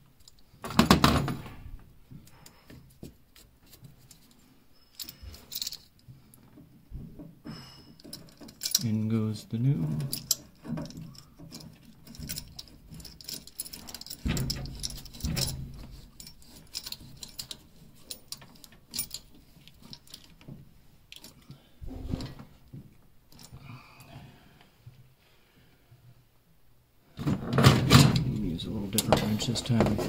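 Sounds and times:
metallic clicking and clinking: 4.9 - 6.6, 7.8 - 9.1, 9.8 - 21.5.

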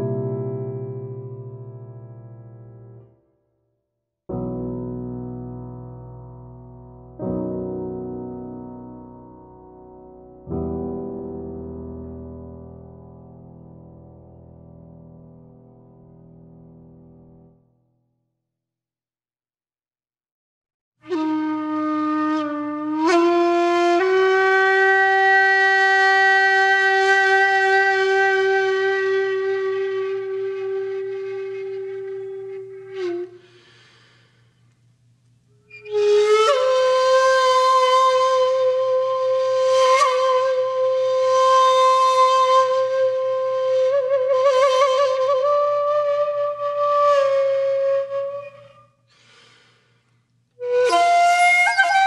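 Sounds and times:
wind instrument long held notes: 50.6 - 52.0.

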